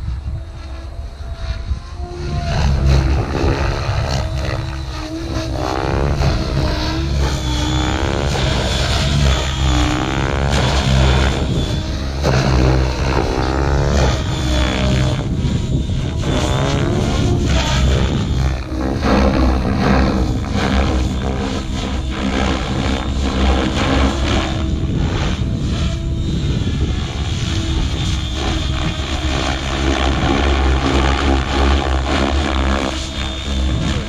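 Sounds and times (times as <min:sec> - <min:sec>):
model helicopter rotor and motor: 0:00.0 - 0:34.0.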